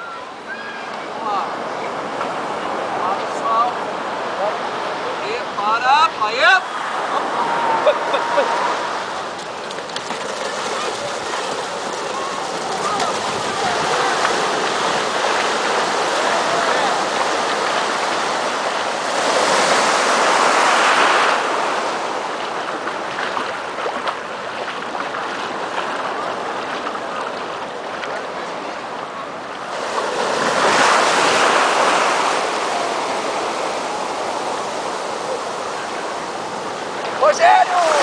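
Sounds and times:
waves breaking on a beach: 0.0s - 38.0s.

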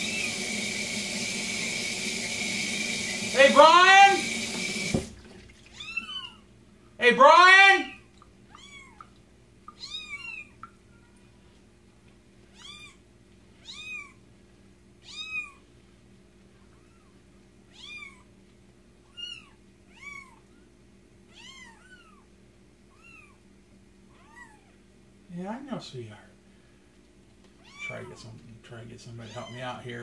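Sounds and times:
kitten mewing: 5.7s - 6.4s, 7.9s - 9.1s.

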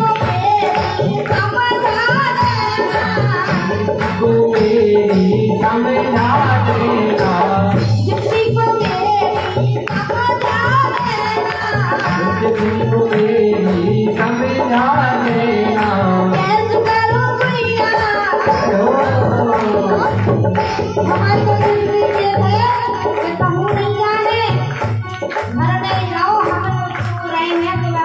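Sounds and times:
woman singing folk song: 0.0s - 3.7s
hand drum beat: 0.0s - 28.0s
keyboard: 0.0s - 28.0s.

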